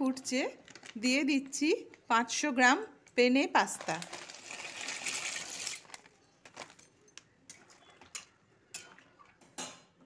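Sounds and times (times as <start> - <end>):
dry pasta pouring into wok: 3.8 - 6.7.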